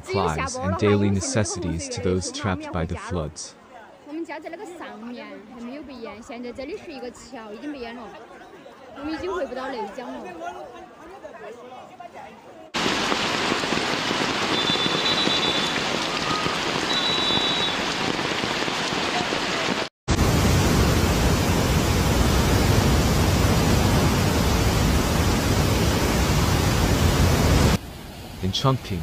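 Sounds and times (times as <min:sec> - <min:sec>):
heavy rain pouring: 0:12.8 - 0:27.8
water rushing through floodgates: 0:12.8 - 0:27.8.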